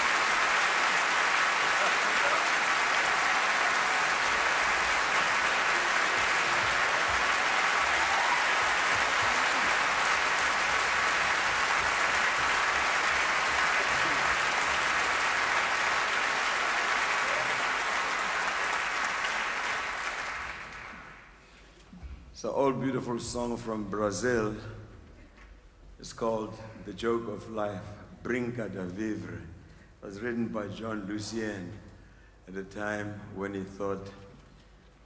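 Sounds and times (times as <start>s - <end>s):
audience applauding: 0.0s - 21.4s.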